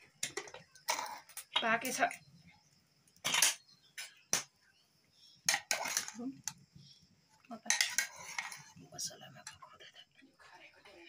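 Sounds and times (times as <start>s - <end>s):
metal spoon clinking in pot: 7.7s - 8.7s.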